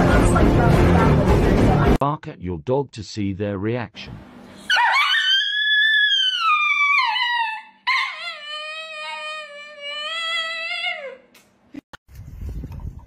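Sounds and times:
dog howling: 4.7 - 11.3.

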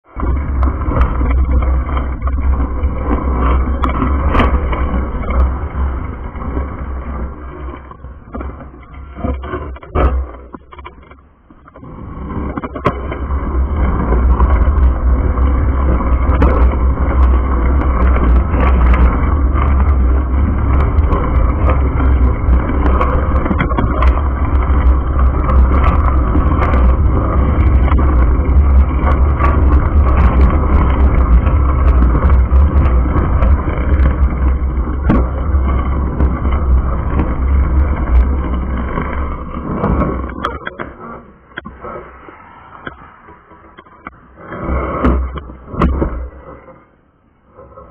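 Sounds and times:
wind buffeting microphone: 12.1 - 46.1
road noise: 12.7 - 47.6.

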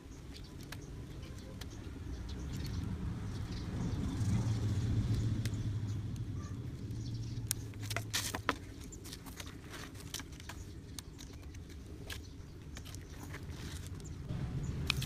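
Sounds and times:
low hum: 14.0 - 15.0.

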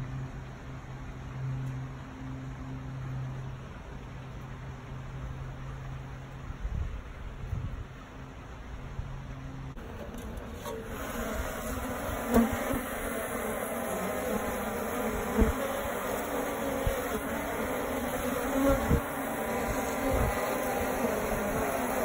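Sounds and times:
bees buzzing: 9.8 - 22.0.

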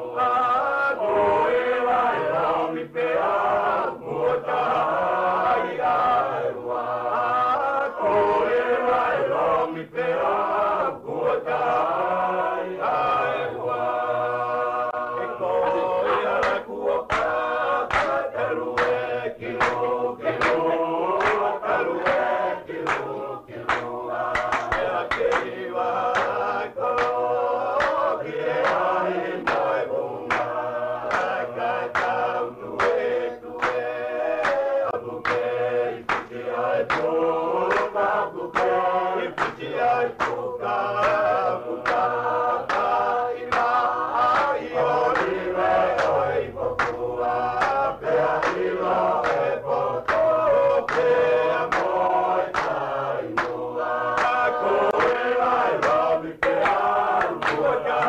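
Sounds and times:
group singing in harmony: 0.0 - 58.0.

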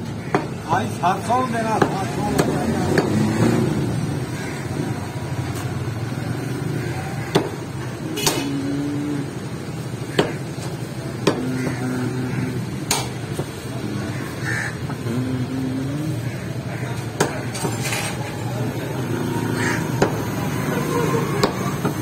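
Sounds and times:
cleaver chopping on wooden block: 7.3 - 7.6, 11.2 - 11.5.

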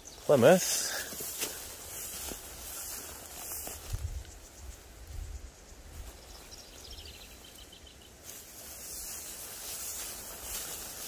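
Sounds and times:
tall grass rustling: 0.0 - 11.0
faint high chirping: 2.8 - 10.9
wind rumbling on microphone: 3.6 - 7.3.

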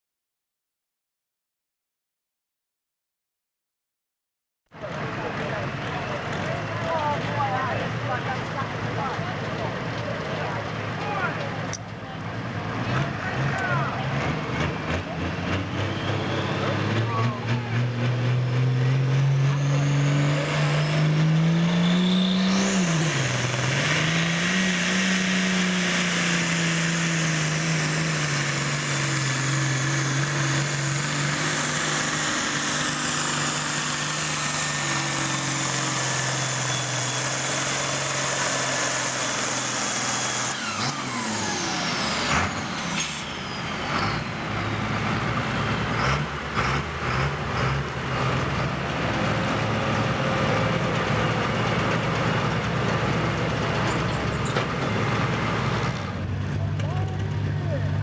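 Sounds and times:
tractor engine at full throttle: 4.7 - 58.0
high turbo whine: 12.9 - 58.0
clunks: 51.0 - 55.3.

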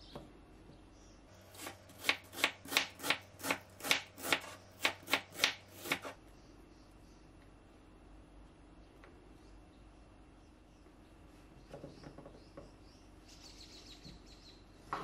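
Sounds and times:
knife slicing onion on wooden board: 1.5 - 6.2.

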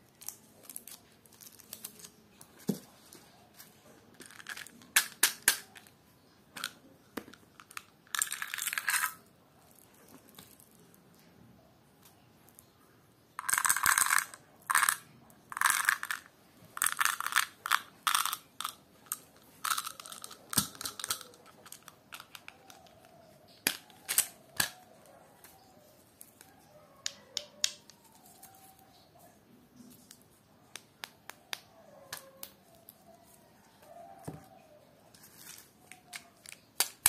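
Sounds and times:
candies rattling into plastic box: 4.2 - 5.6, 7.6 - 9.2, 13.4 - 15.0, 15.6 - 22.8.

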